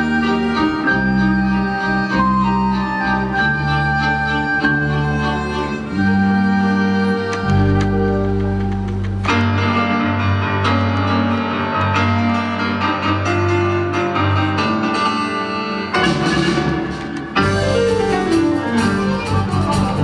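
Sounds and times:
piano and keyboard: 0:00.0 - 0:20.0
violins: 0:00.0 - 0:20.0
bass line: 0:04.8 - 0:10.0
drum kit: 0:15.9 - 0:20.0.

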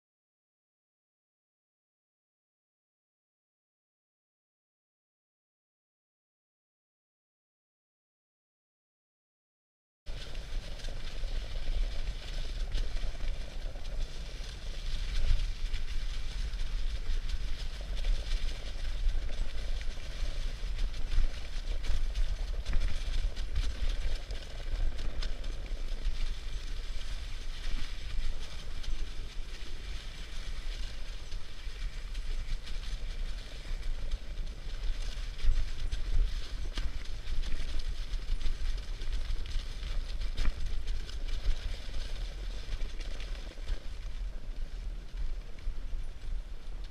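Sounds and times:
sled runners hissing on snow: 0:10.1 - 0:46.9
wind rumble on microphone: 0:10.1 - 0:46.9.

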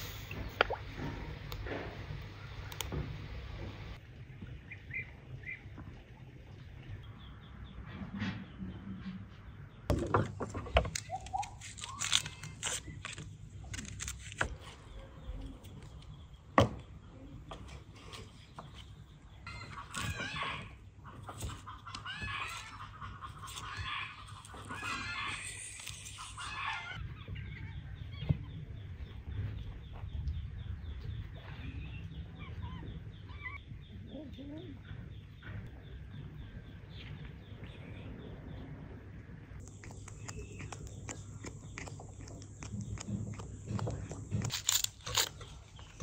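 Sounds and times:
chickens clucking: 0:19.5 - 0:27.4, 0:39.6 - 0:44.5.

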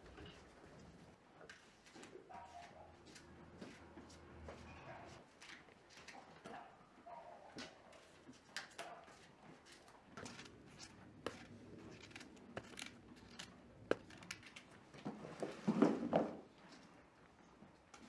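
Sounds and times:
knife cutting fruit: 0:10.2 - 0:14.4.

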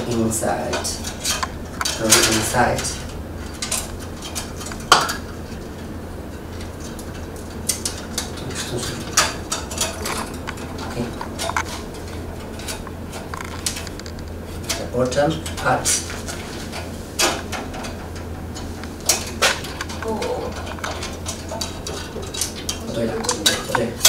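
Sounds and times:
metallic clinks and scrapes: 0:07.8 - 0:14.8.

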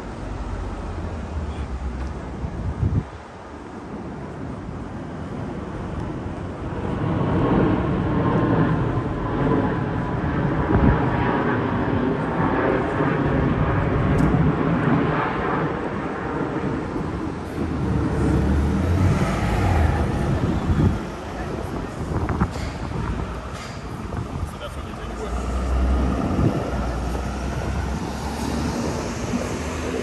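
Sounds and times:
vehicle engine passing: 0:17.4 - 0:23.4, 0:24.1 - 0:30.0.

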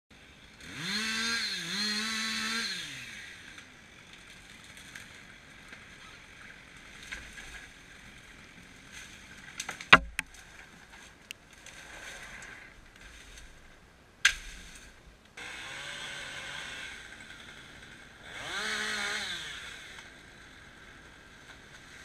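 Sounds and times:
chainsaw revving: 0:00.6 - 0:03.7, 0:15.4 - 0:21.2
tree trunk cracking: 0:08.8 - 0:15.0
tree crown crashing down: 0:09.6 - 0:10.7.

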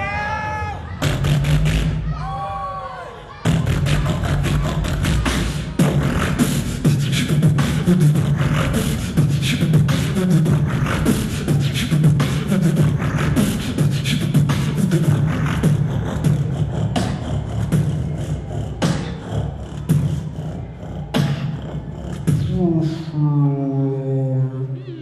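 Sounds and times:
beatboxing drum hits: 0:03.5 - 0:20.3, 0:21.0 - 0:23.0.

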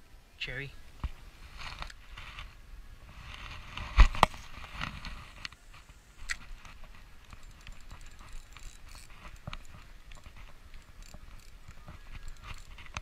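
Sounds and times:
fishing line rushing during cast: 0:07.3 - 0:13.0
fishing reel clicking: 0:07.3 - 0:13.0.

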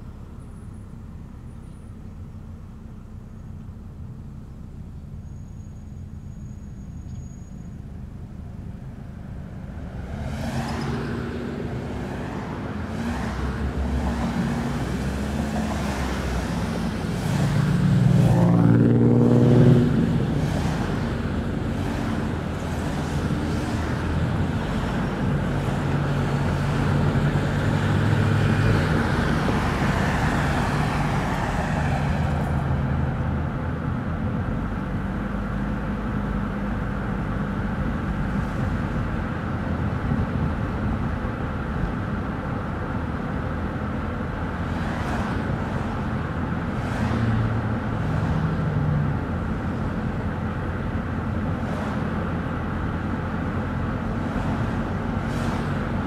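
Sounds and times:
car engine and tyre noise: 0:00.0 - 0:56.0
vehicle passing by: 0:09.4 - 0:33.4, 0:44.5 - 0:50.0.

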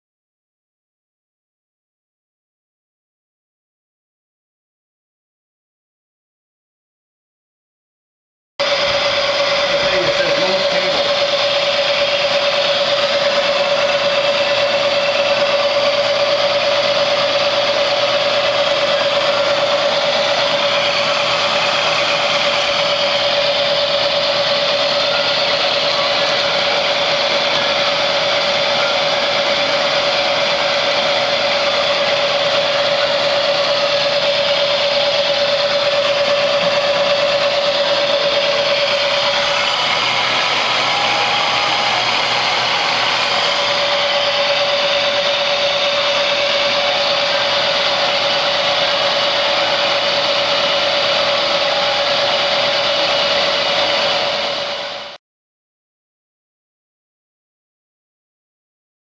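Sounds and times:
milling machine whine: 0:08.6 - 0:55.2.

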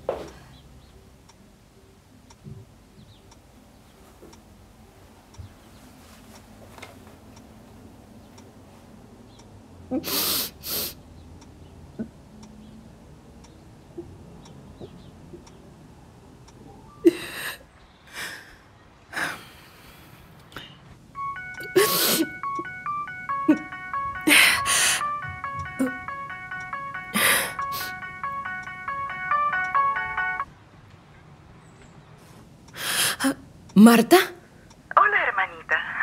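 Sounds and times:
beeping electronic melody: 0:21.2 - 0:30.5.

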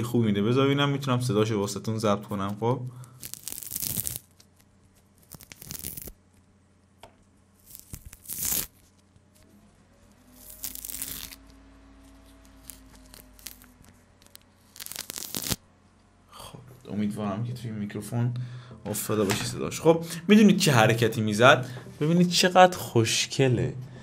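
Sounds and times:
peel being torn by hand: 0:03.1 - 0:06.2, 0:07.6 - 0:09.0, 0:10.4 - 0:11.5, 0:12.5 - 0:15.6.

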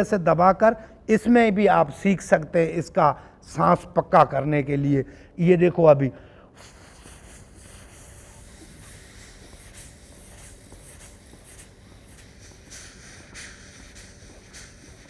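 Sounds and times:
breath blown into cupped hands: 0:06.2 - 0:15.0.

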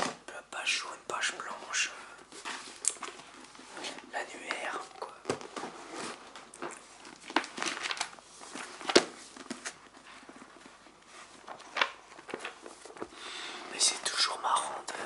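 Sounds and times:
pages flipping and rustling: 0:02.3 - 0:13.2.

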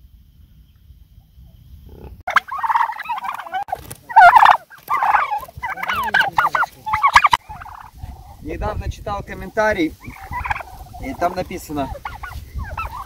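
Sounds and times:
turkeys gobbling: 0:02.3 - 0:08.4, 0:09.3 - 0:13.0.

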